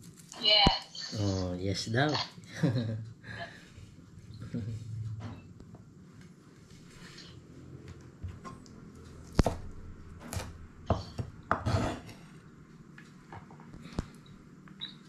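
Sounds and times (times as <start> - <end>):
knife chopping on wooden board: 9.3 - 12.2.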